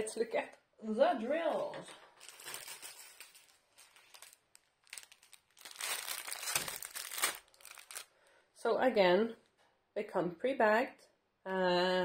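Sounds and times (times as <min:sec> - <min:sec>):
plastic packaging crinkling: 0:02.0 - 0:08.2.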